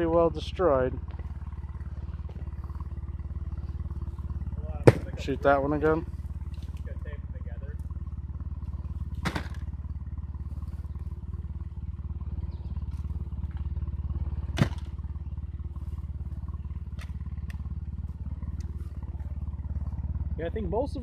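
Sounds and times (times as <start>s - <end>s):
sharp crack: 4.8s - 5.4s, 9.2s - 9.7s, 14.4s - 14.9s.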